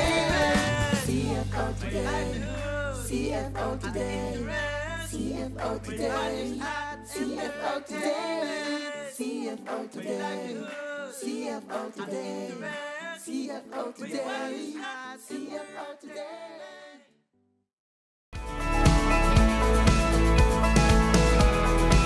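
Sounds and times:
group singing a cappella: 0:00.0 - 0:17.1.

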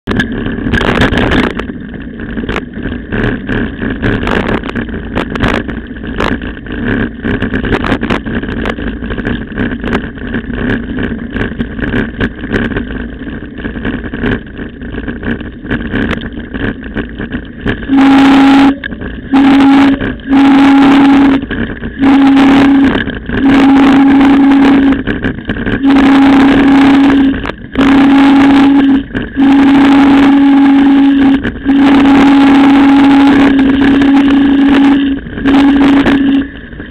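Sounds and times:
wind rush: 0:00.0 - 0:36.9
bike rattling over gravel: 0:00.1 - 0:17.9, 0:21.4 - 0:22.0, 0:25.0 - 0:25.8.

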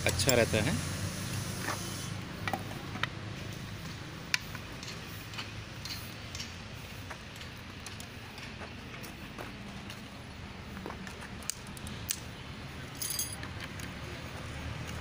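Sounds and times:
light metal clicks and taps: 0:04.3 - 0:06.6.

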